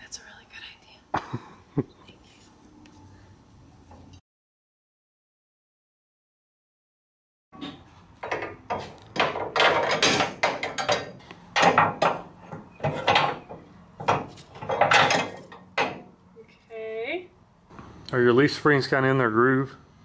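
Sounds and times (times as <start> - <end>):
steel suspension parts clanking: 7.6 - 16.2.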